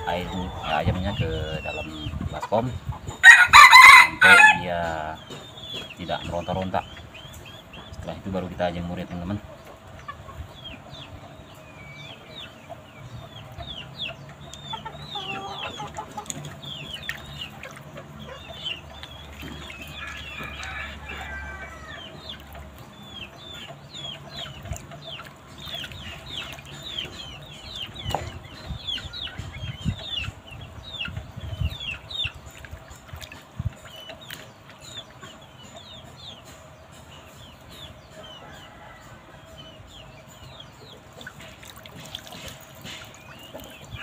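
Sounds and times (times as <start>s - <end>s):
chickens clucking and chirping: 0.0s - 44.0s
water sloshing and splashing: 14.4s - 21.2s, 22.1s - 28.5s, 31.6s - 36.0s, 41.0s - 44.0s.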